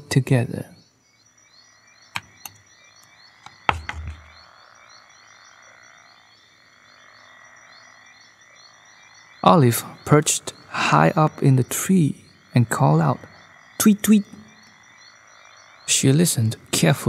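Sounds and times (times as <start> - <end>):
frogs croaking: 0.0 - 17.0
sharp clicks: 2.2 - 2.6, 3.4 - 4.3.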